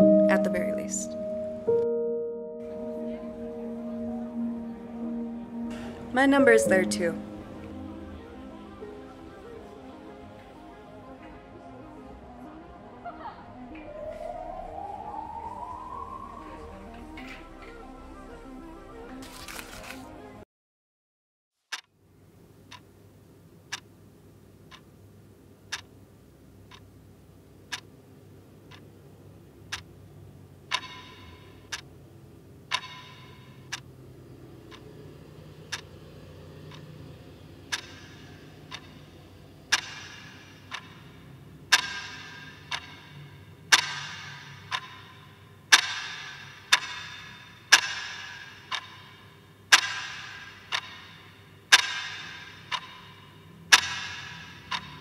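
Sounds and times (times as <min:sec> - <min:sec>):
low steady hum: 0:00.0 - 0:19.2
clock ticking: 0:23.6 - 0:23.9, 0:25.7 - 0:26.0, 0:27.7 - 0:28.0, 0:29.7 - 0:29.9, 0:30.7 - 0:31.9, 0:32.7 - 0:33.9, 0:34.6 - 0:35.0, 0:35.6 - 0:55.0.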